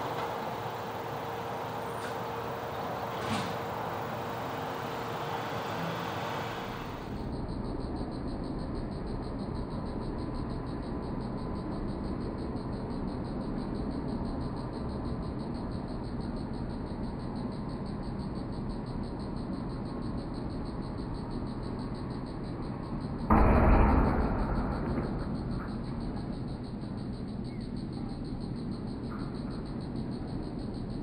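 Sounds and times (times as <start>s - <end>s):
garbage truck diesel engine running: 0.0s - 7.2s
insects trilling: 0.0s - 31.0s.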